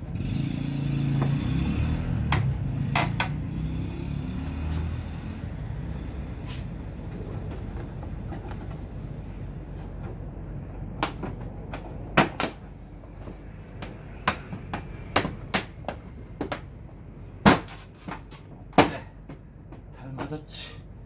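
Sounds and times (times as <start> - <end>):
low background hum: 5.0 - 21.0.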